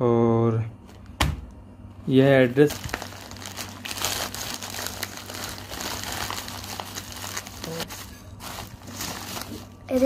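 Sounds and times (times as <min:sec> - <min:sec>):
steady low hum: 0:00.0 - 0:10.0
packaging crinkling and tearing: 0:02.5 - 0:10.0.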